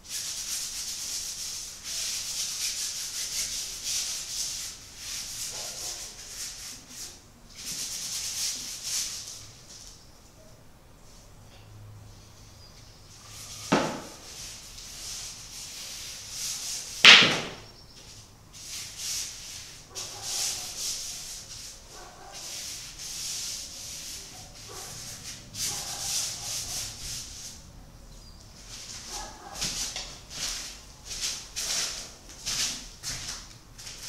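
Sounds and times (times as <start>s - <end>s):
paintbrush scrubbing canvas: 0.1s - 9.4s, 13.2s - 17.0s, 18.1s - 27.6s
sharp knocks: 13.7s - 14.2s, 17.0s - 17.7s.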